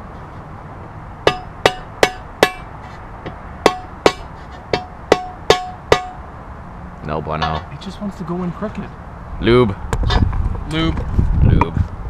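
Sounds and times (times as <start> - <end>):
mallet tapping steel driver: 3.6 - 6.2.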